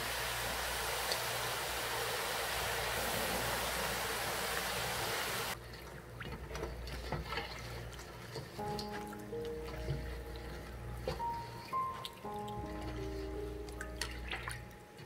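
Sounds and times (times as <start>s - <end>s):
food deep-frying in hot oil: 0.0s - 15.0s.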